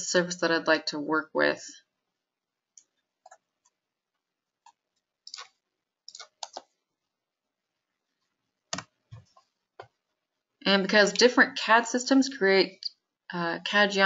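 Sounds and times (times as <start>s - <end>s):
computer mouse clicking: 4.6s - 6.8s, 8.7s - 10.0s.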